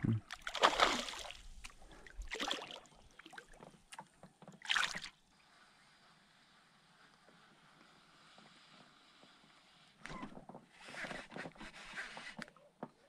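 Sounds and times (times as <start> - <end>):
fish splashing at water surface: 0.3 - 1.5.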